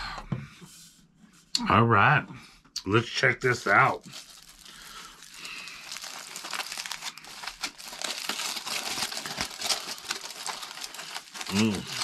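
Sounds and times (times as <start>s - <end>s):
aluminium foil crinkling: 3.6s - 12.0s.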